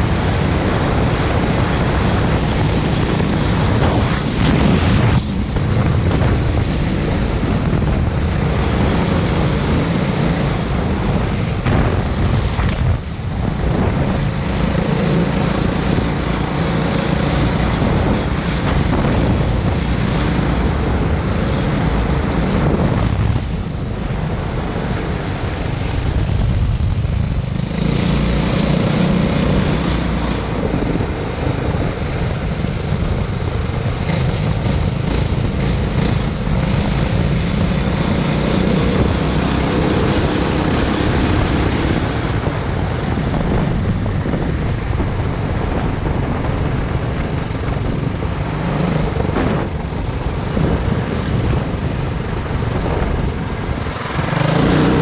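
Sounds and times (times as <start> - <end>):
go-kart engines running: 0.0 - 55.0.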